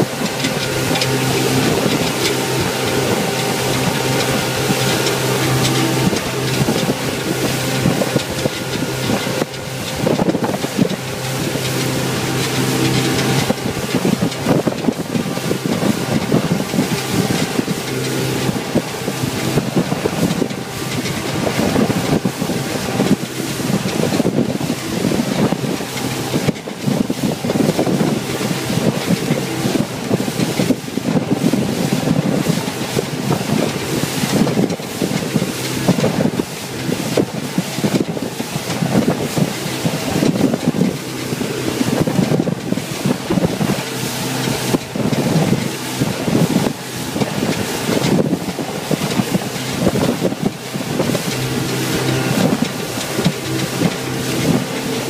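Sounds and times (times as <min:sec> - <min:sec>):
motorboat engine drone: 0:00.0 - 0:55.0
rushing water: 0:00.0 - 0:55.0
wind buffeting microphone: 0:00.0 - 0:55.0.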